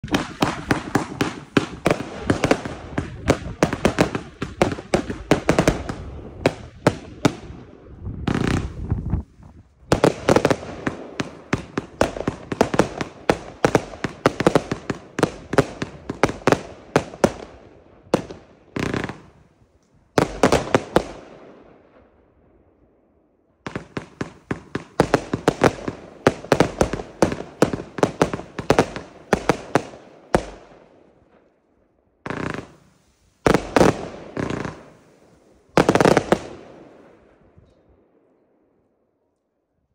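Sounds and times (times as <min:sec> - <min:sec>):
firework cake shots and bursts: 0:00.0 - 0:07.5.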